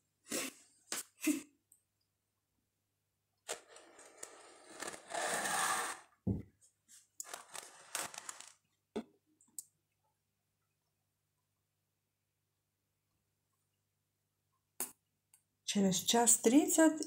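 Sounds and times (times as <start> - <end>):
cutting board scraping countertop: 3.5 - 6.4.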